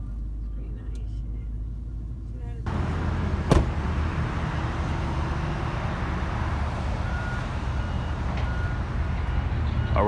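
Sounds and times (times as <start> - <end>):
road traffic rumble: 0.0 - 10.0
sharp knock: 3.5 - 3.8.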